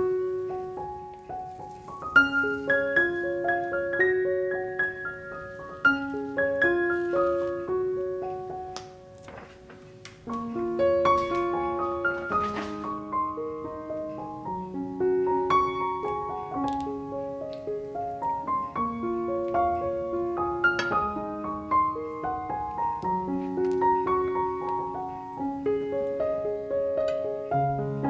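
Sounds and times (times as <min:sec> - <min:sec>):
gentle piano music: 0:00.0 - 0:28.0.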